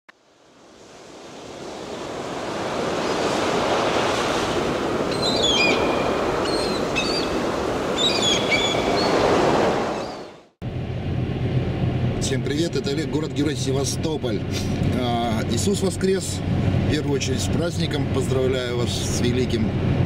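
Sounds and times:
sea surf washing on shore: 0.2 - 10.6
high bird chirps: 5.1 - 7.4, 8.0 - 9.3, 10.0 - 10.3.

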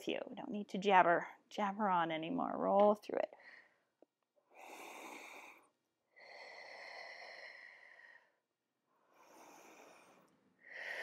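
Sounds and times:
woman breathing: 3.3 - 11.0.

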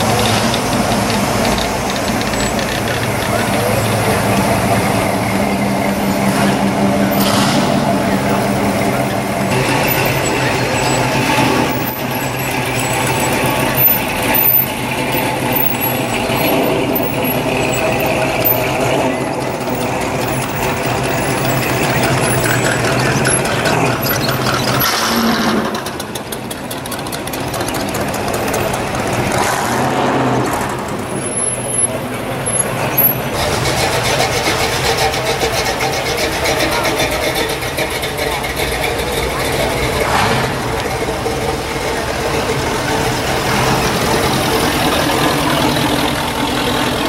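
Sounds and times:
car engines idling low rumble: 0.0 - 47.0.

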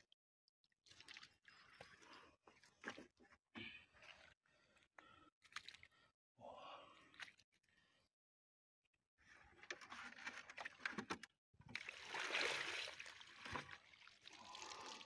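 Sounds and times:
muddy water splashing and trickling: 0.8 - 6.1, 11.7 - 15.0.

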